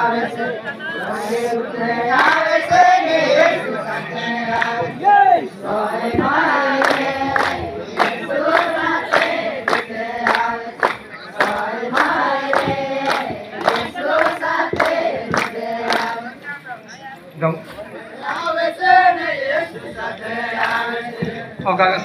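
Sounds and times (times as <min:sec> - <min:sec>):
crowd singing together: 0:00.0 - 0:22.0
sharp rhythmic beats: 0:01.7 - 0:16.4, 0:18.2 - 0:22.0.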